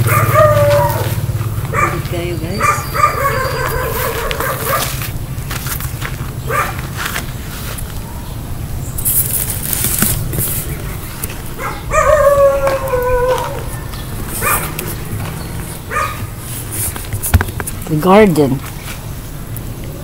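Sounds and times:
steady low rumble: 0:00.0 - 0:18.0
animal's drawn-out call: 0:02.6 - 0:05.0
rustling: 0:09.0 - 0:11.7, 0:13.4 - 0:19.1.

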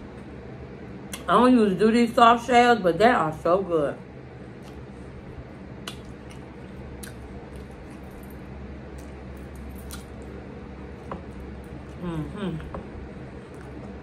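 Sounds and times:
mouth clicks and smacks: 0:05.8 - 0:06.4
chewing mouth noise: 0:05.8 - 0:10.4.

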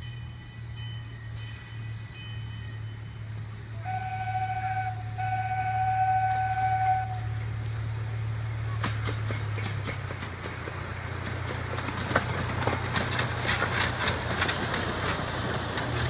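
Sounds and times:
locomotive low hum: 0:00.0 - 0:16.0
train whistle blast: 0:03.1 - 0:08.0.

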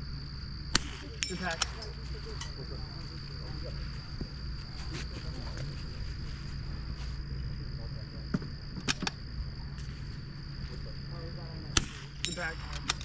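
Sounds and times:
high-pitched insect drone: 0:00.0 - 0:13.0
low hum: 0:00.0 - 0:13.0
rifle shots: 0:00.7 - 0:01.8, 0:11.7 - 0:13.0.

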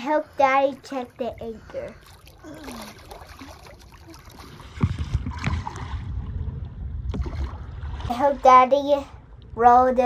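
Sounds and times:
water sloshing around boat: 0:00.0 - 0:09.3
wind buffeting microphone: 0:04.2 - 0:10.0
knocks on boat: 0:04.8 - 0:05.6.

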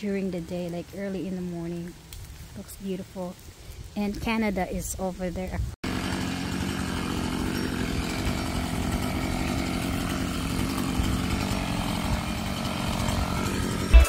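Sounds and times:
chainsaw running: 0:05.8 - 0:14.0.

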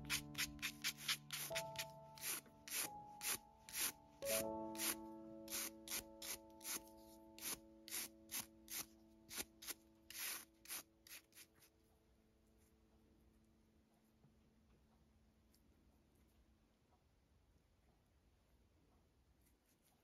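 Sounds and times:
soft held music chord: 0:00.0 - 0:14.6.

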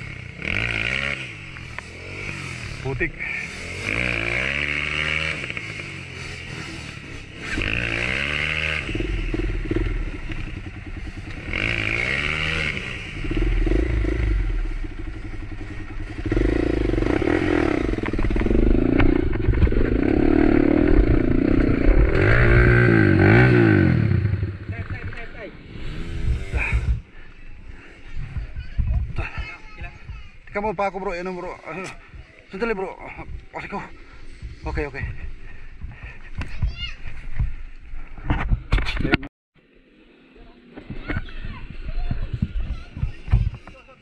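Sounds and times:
motorcycle engine revving: 0:00.0 - 0:36.3.

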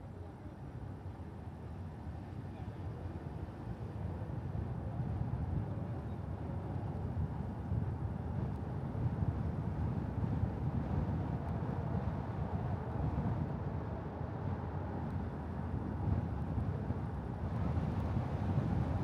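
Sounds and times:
wind buffeting microphone: 0:04.6 - 0:19.0.

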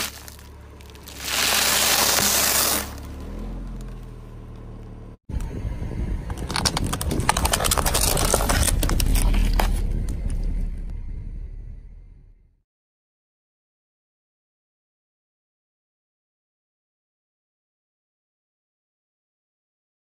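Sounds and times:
tyre crushing plastic cups: 0:00.0 - 0:03.1, 0:06.3 - 0:09.8
tyre crunching cardboard box: 0:00.0 - 0:03.5, 0:06.4 - 0:09.8
car engine rumble: 0:00.0 - 0:12.6.

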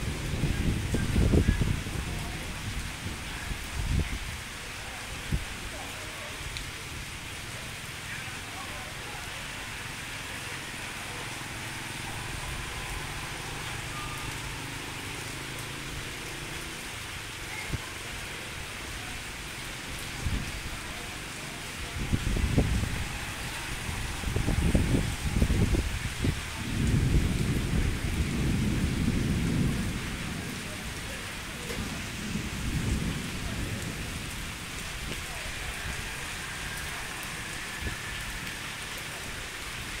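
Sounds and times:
thunder rumble: 0:00.0 - 0:04.2, 0:22.0 - 0:38.3
rain on concrete: 0:00.0 - 0:40.0.

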